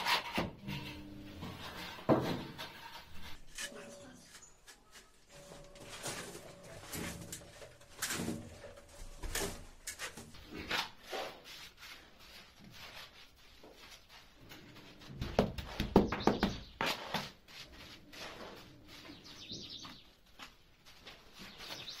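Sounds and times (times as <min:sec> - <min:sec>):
screed scraping and rubbing: 0:00.0 - 0:15.2.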